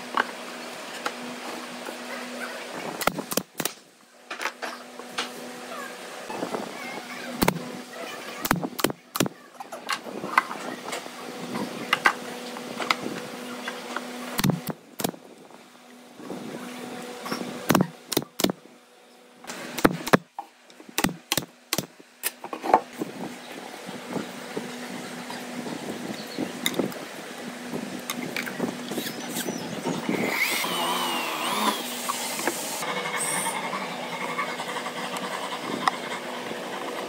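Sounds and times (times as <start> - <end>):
nail gun firing: 17.7 - 18.6, 19.8 - 20.2, 21.0 - 21.9.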